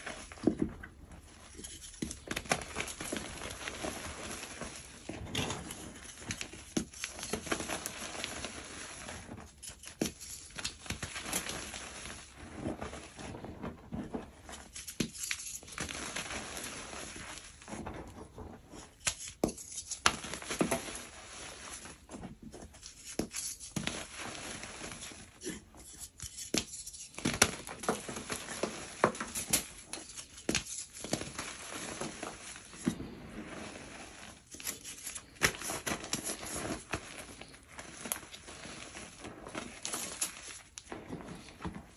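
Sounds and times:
chalk blocks crunching and snapping: 22.6s - 33.0s, 34.4s - 41.0s.

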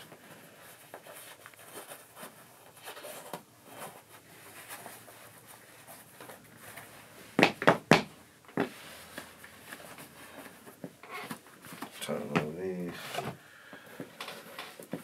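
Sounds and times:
shoelaces rubbing and rustling: 0.0s - 15.0s.

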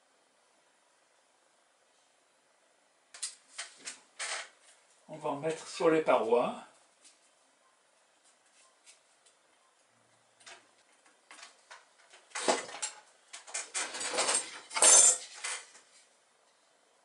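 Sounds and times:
metal tools clinking on workbench: 12.4s - 15.8s.

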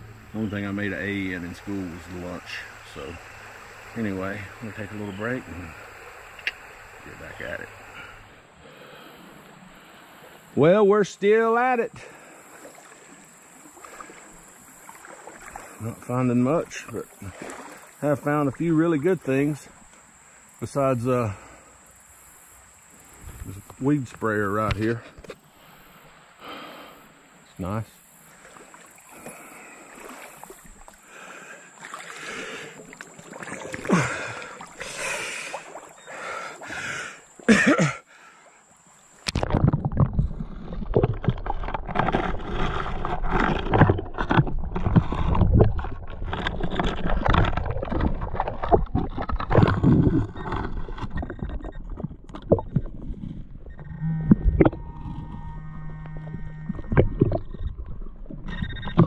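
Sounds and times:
water splashing from wading: 0.0s - 10.6s, 12.0s - 20.8s, 25.5s - 59.0s
faint steady high tone: 53.8s - 56.7s.

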